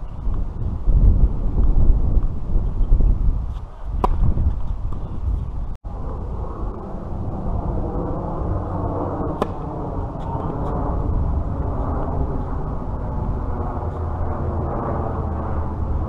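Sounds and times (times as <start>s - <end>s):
wind noise on microphone: 0.0s - 16.0s
racket striking tennis ball: 3.5s - 5.1s, 9.4s - 10.4s.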